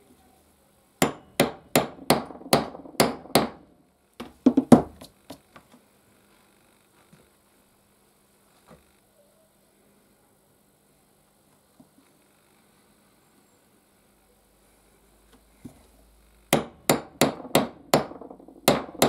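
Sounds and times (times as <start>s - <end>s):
hammer striking metal punch: 1.0s - 3.6s, 16.5s - 19.0s.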